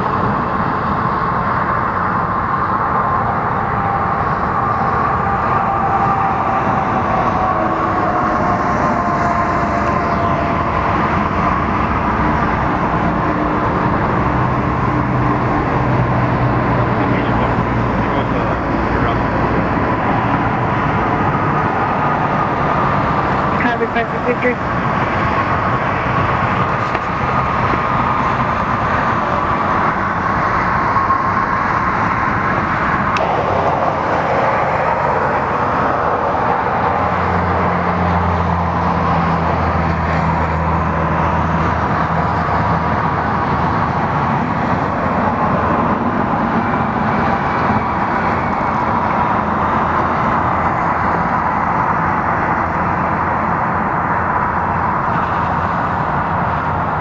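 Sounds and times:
freeway traffic: 0.0s - 57.0s
faint whine: 26.5s - 37.0s
deep hum: 33.1s - 36.4s.

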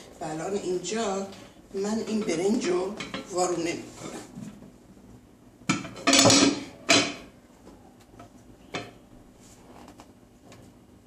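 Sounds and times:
metal saucepan clattering on glass plate: 5.7s - 7.2s.

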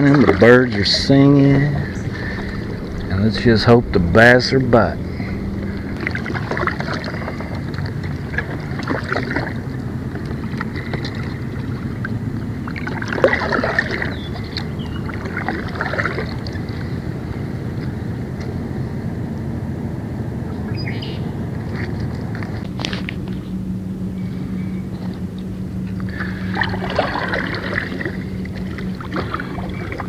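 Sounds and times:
paddle splashing in water: 0.0s - 3.1s, 5.1s - 17.0s, 26.1s - 30.0s
wind noise on microphone: 0.0s - 25.4s.

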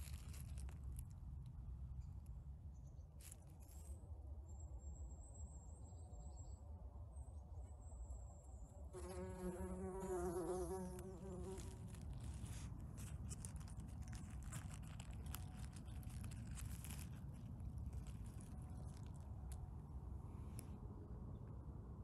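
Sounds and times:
bumblebee wings buzzing: 9.0s - 12.6s
faint rustling: 10.9s - 20.8s.

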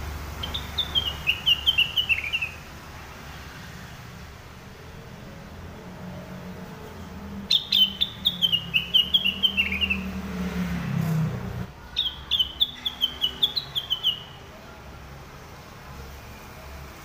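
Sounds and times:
bird singing whistled notes: 0.4s - 2.6s, 7.5s - 10.2s, 12.0s - 14.4s.

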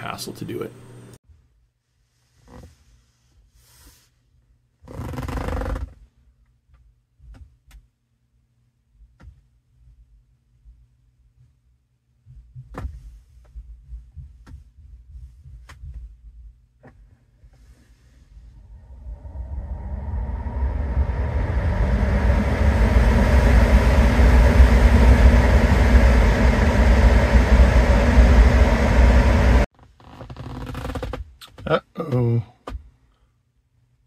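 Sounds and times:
car ventilation fan rumble: 12.6s - 29.7s.

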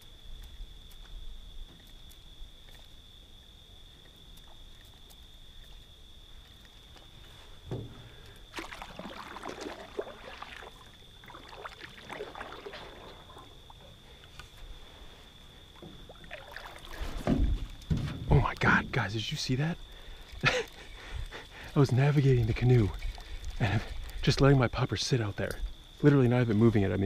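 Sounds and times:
canoe paddle strokes splashing: 4.0s - 19.0s, 19.9s - 24.2s
paddle knocks on hull: 17.2s - 18.4s.

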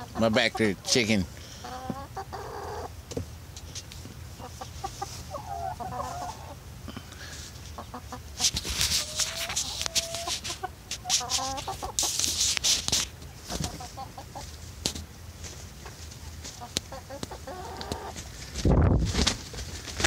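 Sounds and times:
drawn-out hen calls: 0.0s - 3.1s, 4.2s - 12.2s, 13.2s - 14.8s, 15.7s - 18.5s
hens clucking: 0.0s - 18.6s.

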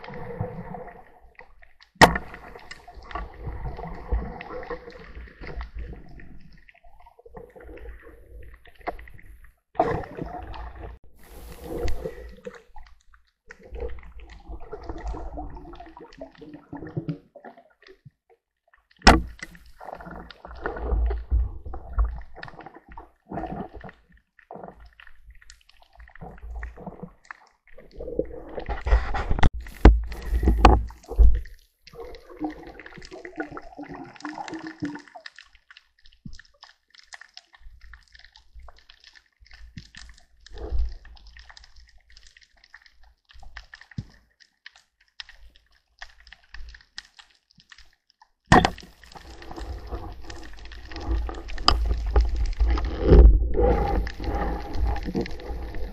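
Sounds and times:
water gurgling and sloshing: 0.0s - 55.9s.

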